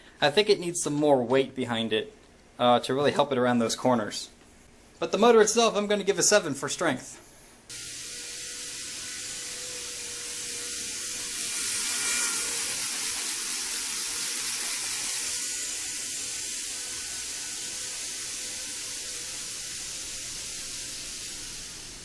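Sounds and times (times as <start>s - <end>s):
model train whirring on rails: 7.7s - 22.0s.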